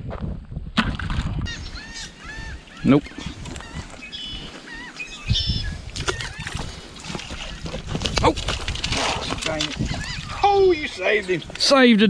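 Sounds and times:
water splashing and rustling: 0.8s - 12.0s
geese honking: 1.5s - 7.8s.

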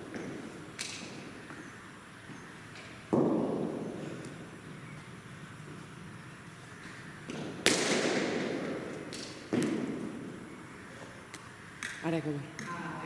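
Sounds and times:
cricket bat hitting ball: 7.3s - 10.0s.

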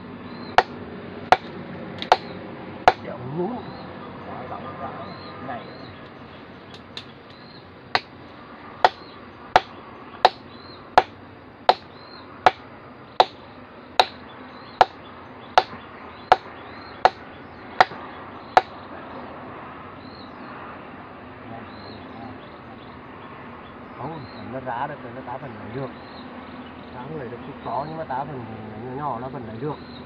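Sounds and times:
hammer striking chisel on rock: 0.6s - 2.3s, 2.9s - 3.1s, 8.8s - 10.4s, 11.0s - 11.9s, 13.2s - 13.4s, 14.0s - 14.2s, 15.6s - 17.2s.

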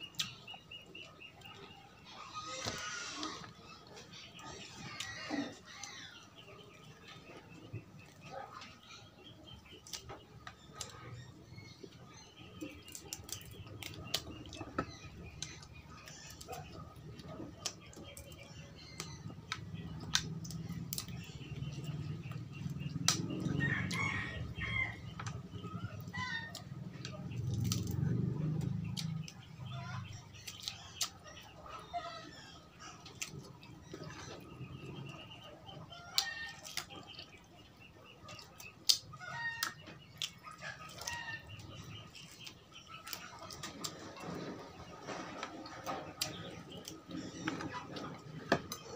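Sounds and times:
chickens clucking: 0.0s - 48.9s
food being bitten and torn: 27.3s - 29.2s.

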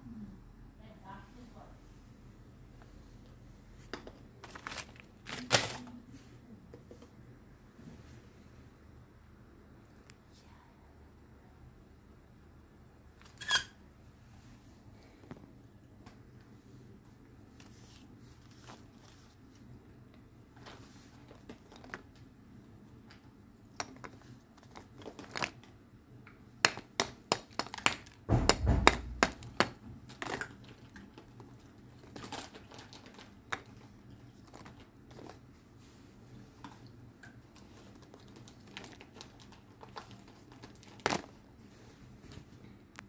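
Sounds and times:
dull heavy knock: 28.3s - 29.3s.

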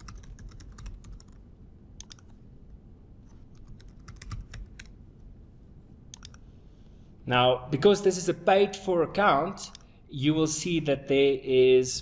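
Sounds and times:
keyboard keys clicking: 0.0s - 1.4s, 2.0s - 2.3s, 3.5s - 4.9s, 6.1s - 6.4s.

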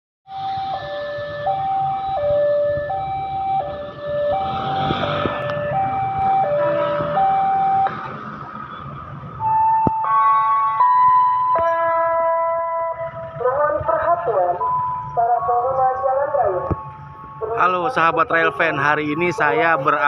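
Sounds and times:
road traffic noise: 0.3s - 20.0s.

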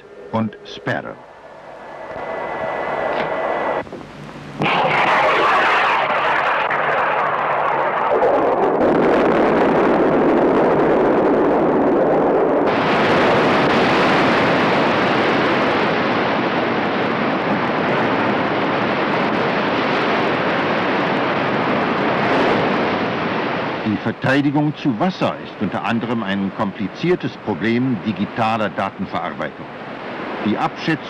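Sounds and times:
wind waves and spray: 1.3s - 31.0s
rumbling explosion: 1.9s - 24.3s.

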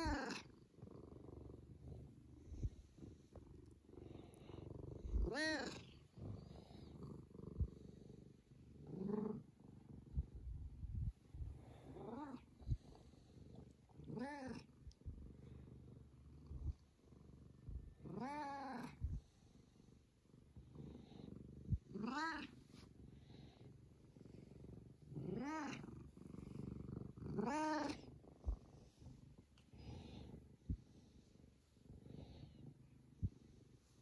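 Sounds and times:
cat purring: 0.0s - 34.0s.

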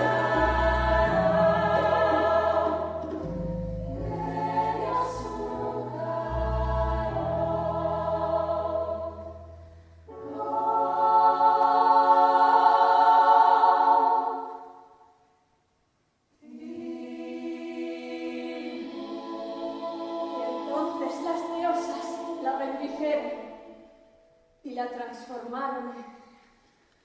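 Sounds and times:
choir singing held chords: 0.0s - 15.2s, 16.4s - 24.4s.

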